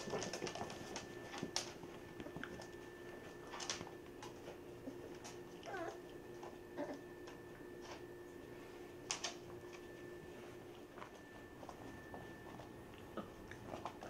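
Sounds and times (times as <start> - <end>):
paws clicking on floor: 0.0 - 14.0
puppy whimpering: 4.8 - 7.2.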